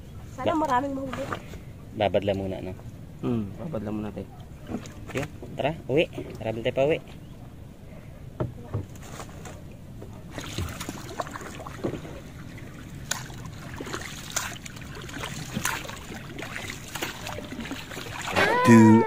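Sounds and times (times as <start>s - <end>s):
paddle water swishing and dripping: 4.3s - 7.5s, 8.3s - 18.6s.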